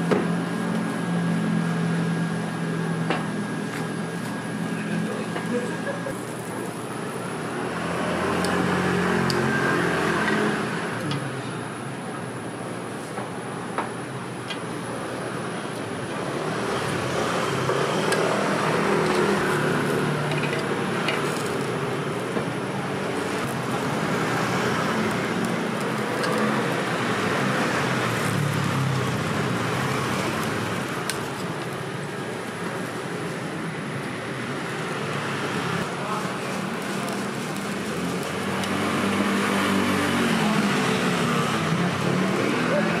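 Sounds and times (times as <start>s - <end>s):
passing vehicles: 16.3s - 43.0s.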